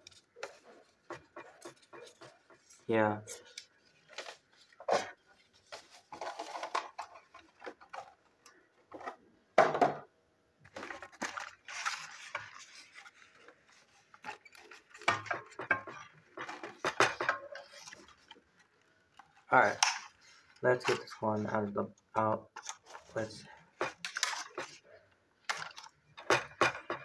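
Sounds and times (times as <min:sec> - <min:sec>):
packaging rustling: 0:00.1 - 0:08.3, 0:10.7 - 0:21.2.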